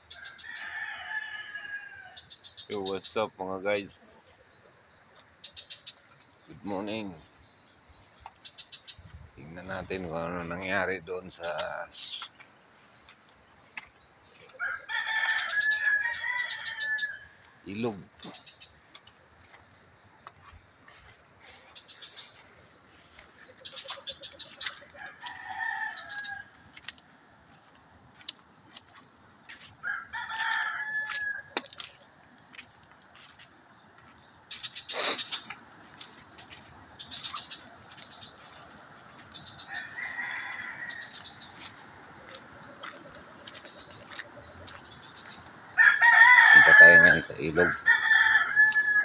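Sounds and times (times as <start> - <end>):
roosters crowing: 0.0 - 4.0, 14.2 - 18.8, 21.3 - 26.9, 29.4 - 32.0, 37.0 - 49.0
high insect drone: 0.0 - 49.0
footsteps and rustling: 11.5 - 15.9, 18.2 - 45.6.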